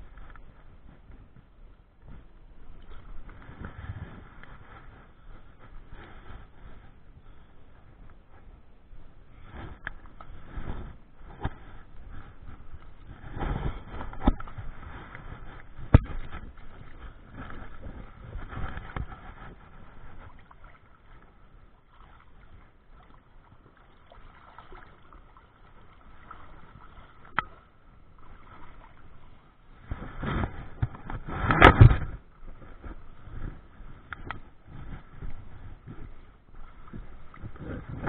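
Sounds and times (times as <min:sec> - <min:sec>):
water sloshing and splashing: 0:02.0 - 0:08.5, 0:09.3 - 0:38.0.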